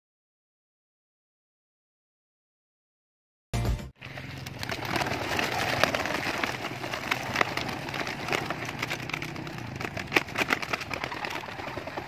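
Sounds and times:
pigeon wings clapping: 4.0s - 12.0s.

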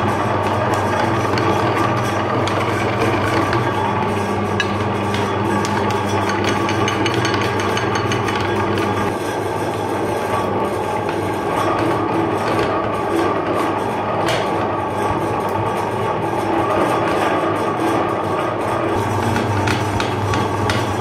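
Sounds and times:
chocolate crackling in grinder: 0.0s - 21.0s
electric meat grinder running: 0.0s - 21.0s.

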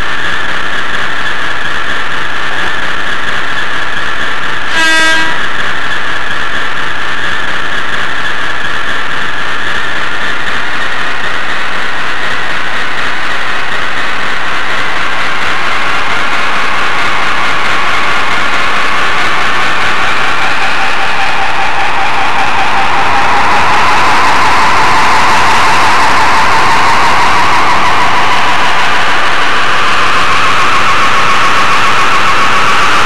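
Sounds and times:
model train horn toot: 4.6s - 5.7s
steady loud hiss with whine: 9.9s - 33.0s.

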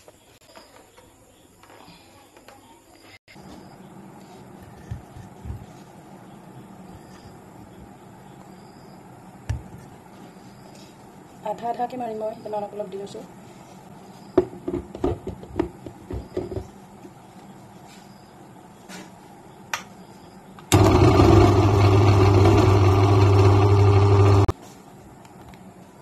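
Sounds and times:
mixer grinder motor running: 20.7s - 24.5s.

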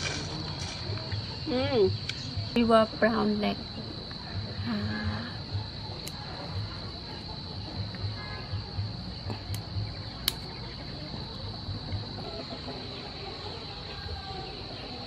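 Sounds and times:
high-pitched insect drone: 0.0s - 15.0s
prawn shell cracking: 9.5s - 10.5s
chickens clucking: 11.3s - 15.0s.

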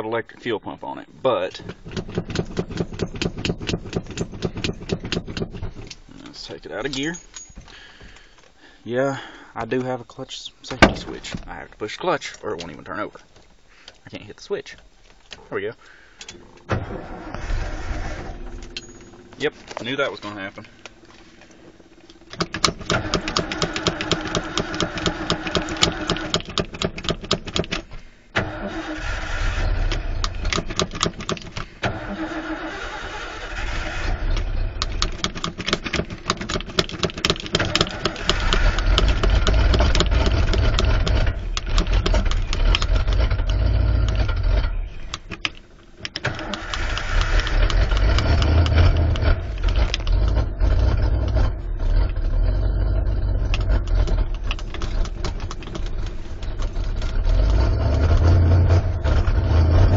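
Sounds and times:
engine running rough: 16.4s - 27.4s, 28.7s - 59.9s
engine cranking on starter: 16.4s - 59.9s.

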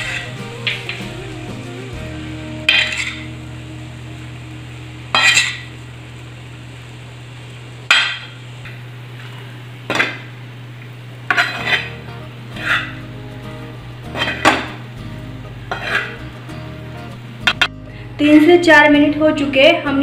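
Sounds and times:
spatula scraping a griddle: 0.0s - 1.0s, 2.6s - 3.3s, 5.1s - 5.7s, 11.3s - 13.1s, 14.1s - 14.8s, 15.7s - 16.3s.

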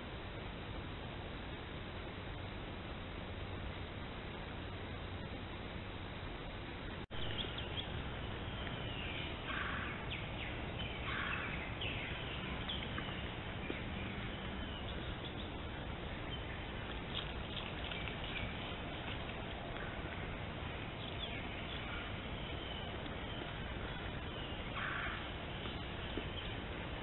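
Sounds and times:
microphone hiss: 0.0s - 27.0s
birds calling and chirping: 7.1s - 27.0s.

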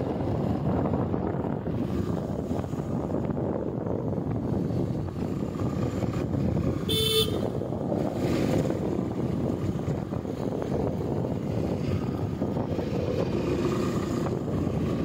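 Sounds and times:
vehicle rumble: 0.0s - 15.0s
wind noise: 0.0s - 15.0s
vehicle horn beep: 6.9s - 7.5s.

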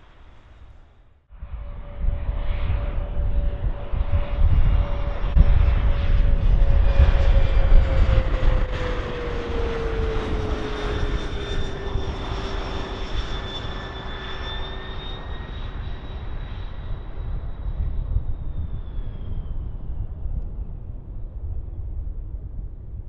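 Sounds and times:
airliner engines rumbling past: 0.0s - 23.0s.

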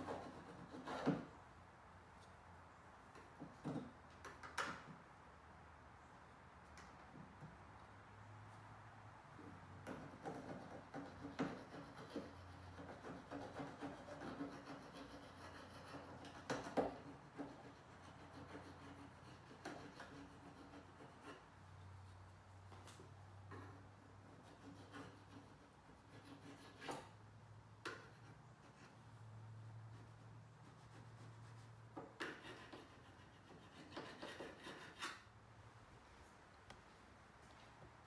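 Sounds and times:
paint scraper scraping: 30.0s - 35.3s.

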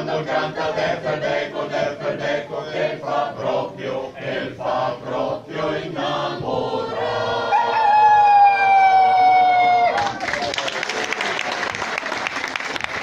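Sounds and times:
choir singing: 0.0s - 8.0s.

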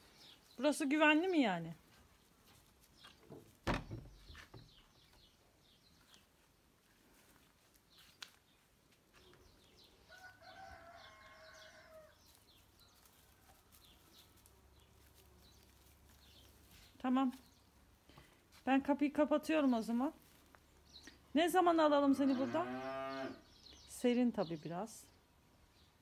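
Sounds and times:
small birds chirping: 0.0s - 26.0s
knocks: 3.6s - 4.8s
rooster crowing: 10.1s - 12.2s.

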